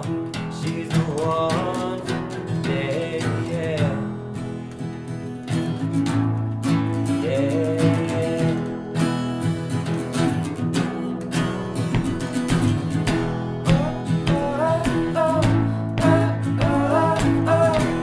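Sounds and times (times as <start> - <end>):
person singing: 0.0 - 4.2, 7.1 - 8.7, 13.0 - 18.0
acoustic guitars strumming: 0.0 - 18.0.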